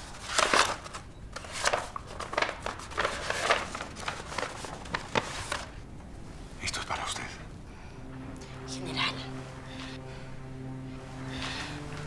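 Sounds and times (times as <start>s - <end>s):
paper crinkling and rustling: 0.0s - 5.8s.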